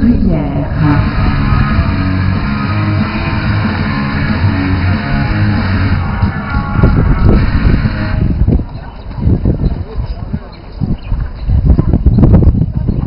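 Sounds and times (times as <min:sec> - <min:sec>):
steady low bass: 0:00.0 - 0:08.7
guitar music: 0:00.6 - 0:08.4.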